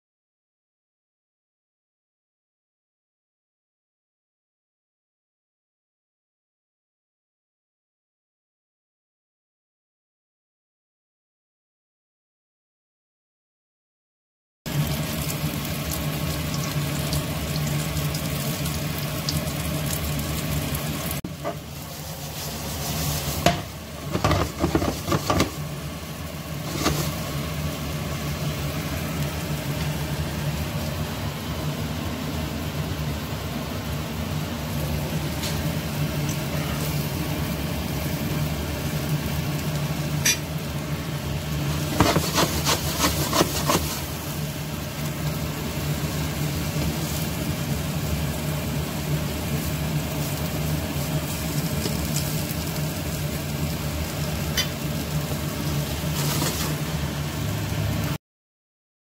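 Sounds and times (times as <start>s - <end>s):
fish sizzling in a frying pan: 14.7s - 58.2s
pan knocking and clattering: 23.4s - 25.6s.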